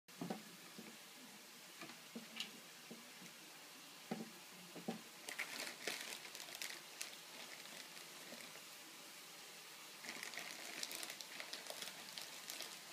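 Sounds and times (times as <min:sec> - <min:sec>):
plastic bag crinkling: 0:05.2 - 0:08.6, 0:10.0 - 0:12.9.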